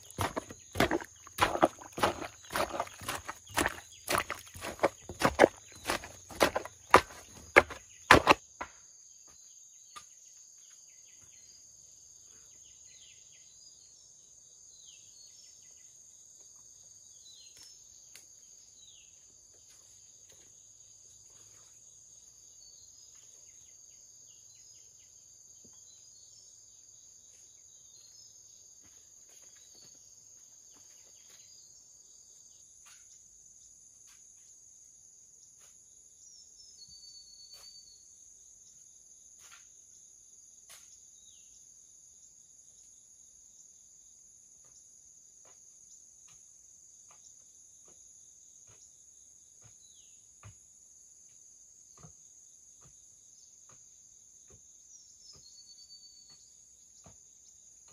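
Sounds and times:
heavy thuds of soil tamping: 0.0s - 8.4s
crickets droning: 0.0s - 57.9s.

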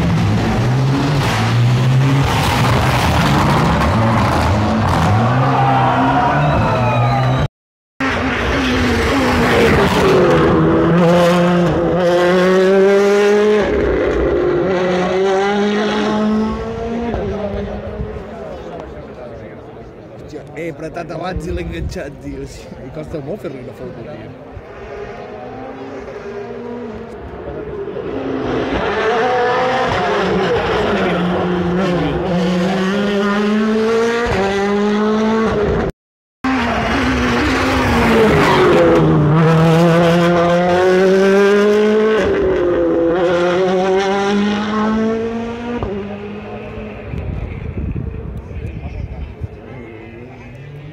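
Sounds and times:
rally car engine at full throttle: 0.0s - 21.6s, 23.6s - 50.9s.

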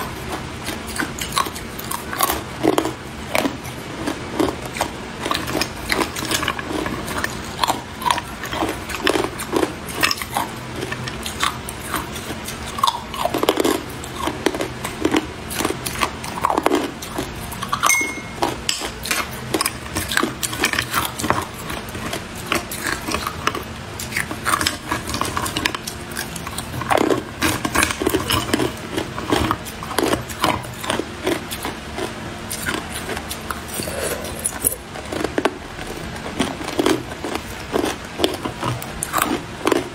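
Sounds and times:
ice cubes clinking: 17.8s - 18.4s
metal spoon scraping in glass: 17.8s - 18.4s.

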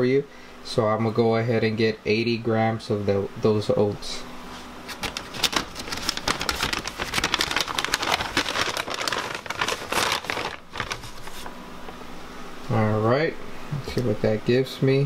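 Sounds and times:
bag crinkling and rustling: 4.9s - 11.6s.

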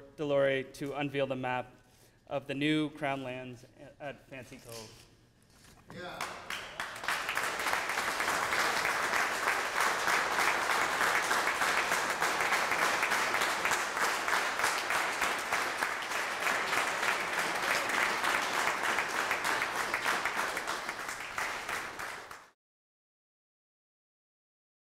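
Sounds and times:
crowd applauding: 6.0s - 22.6s.

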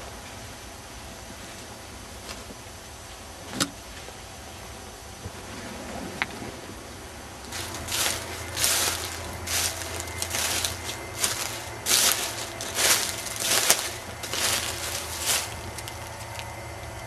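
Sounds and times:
low hum: 4.0s - 17.0s
footsteps in dry leaves: 7.4s - 17.0s.

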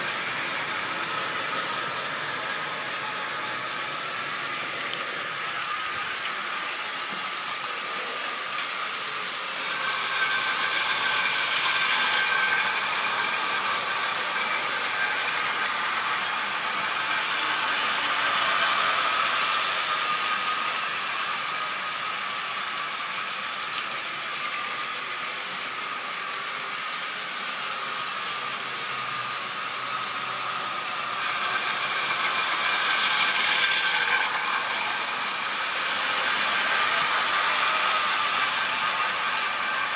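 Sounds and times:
model trains running on tracks: 0.0s - 39.9s.

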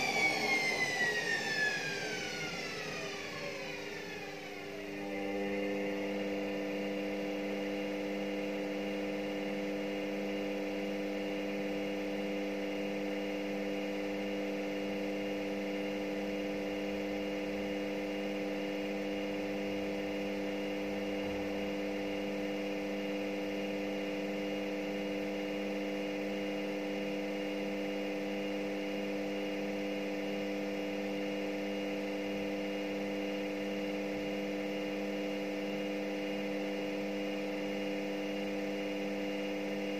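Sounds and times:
washing machine spinning: 0.0s - 9.2s.

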